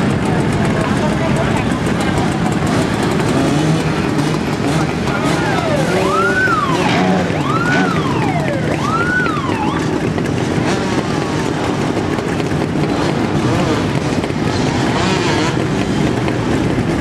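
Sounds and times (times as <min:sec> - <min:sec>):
motorcycle engines running: 0:00.0 - 0:17.0
siren wailing: 0:05.0 - 0:10.0.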